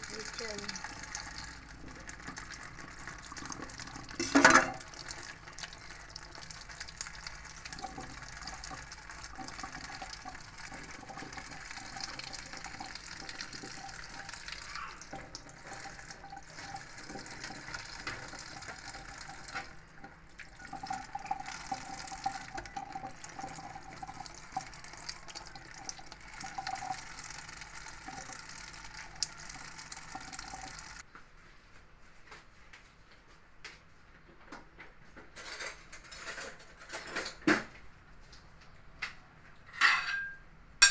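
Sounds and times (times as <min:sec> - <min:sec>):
tap water splashing into sink: 0:00.0 - 0:31.0.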